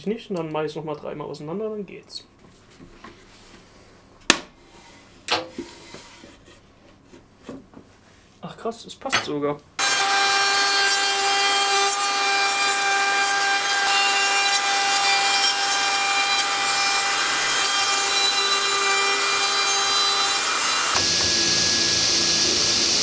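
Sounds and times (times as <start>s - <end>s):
router cutting wood: 9.8s - 23.0s
table saw running: 9.8s - 23.0s
dust extractor whir and hiss: 20.2s - 23.0s.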